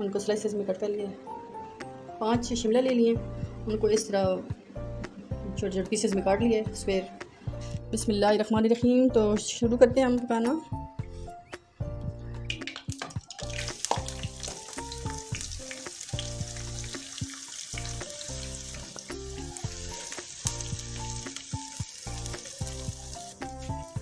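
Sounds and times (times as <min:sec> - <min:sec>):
onions sizzling in hot oil: 0:13.4 - 0:24.0.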